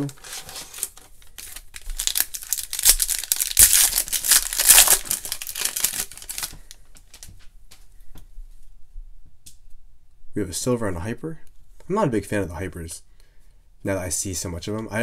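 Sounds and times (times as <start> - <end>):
foil wrapper crinkling and tearing: 0.0 - 7.3.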